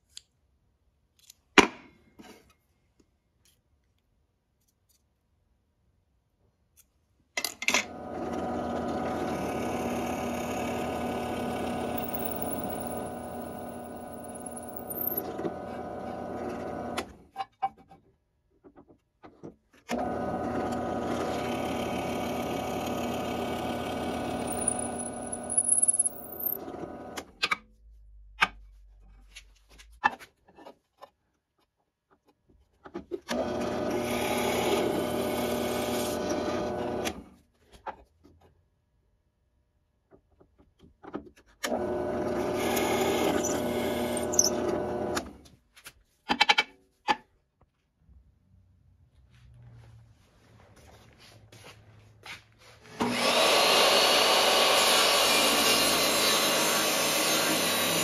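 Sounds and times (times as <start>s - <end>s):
drill press boring into wood: 8.3s - 17.1s, 20.0s - 26.8s, 41.7s - 45.3s, 53.0s - 58.0s.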